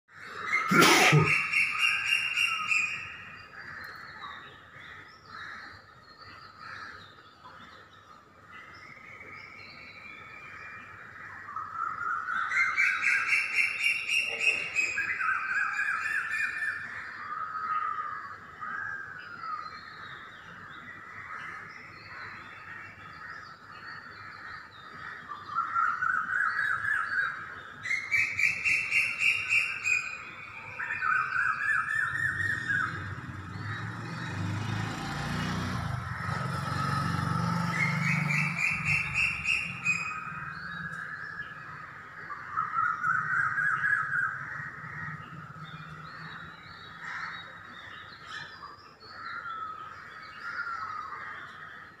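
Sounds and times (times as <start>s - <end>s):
pulsing bird calls: 0.1s - 7.0s, 10.9s - 18.8s, 21.2s - 34.8s, 35.8s - 51.4s
bird chatter: 37.7s - 52.0s.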